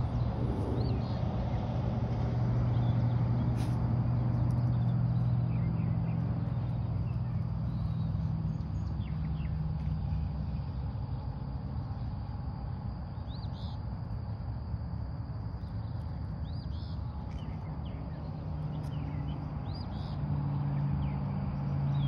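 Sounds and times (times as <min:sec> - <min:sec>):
vehicle engine humming: 0:00.0 - 0:12.5.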